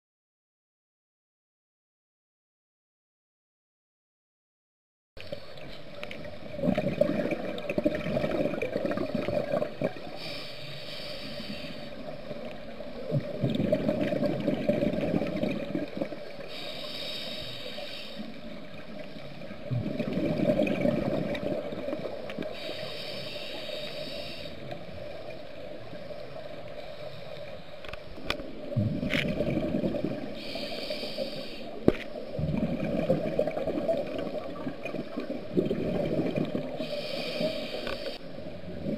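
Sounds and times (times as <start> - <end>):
bubbling regulator exhale: 6.4 - 10.4, 13.0 - 18.3, 19.6 - 24.6, 28.7 - 38.9
hissing regulator inhale: 10.0 - 12.2, 16.4 - 18.5, 22.4 - 24.8, 30.1 - 32.4, 36.7 - 38.4.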